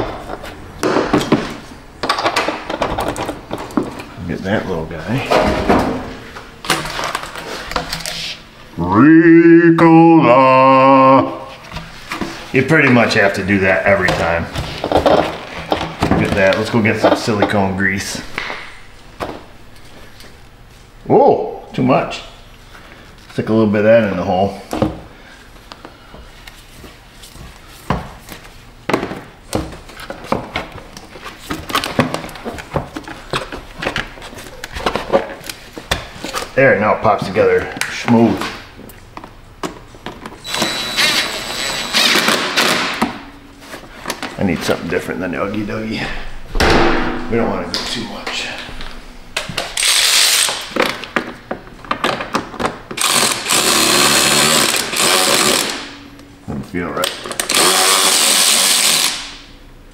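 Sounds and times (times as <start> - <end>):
electric ratchet running: 40.4 - 42.8, 49.8 - 50.6, 53.0 - 55.9, 57.4 - 59.4.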